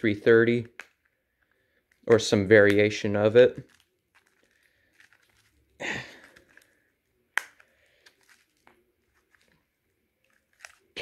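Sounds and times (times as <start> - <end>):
plastic battery cover clicks: 7.4 - 7.7.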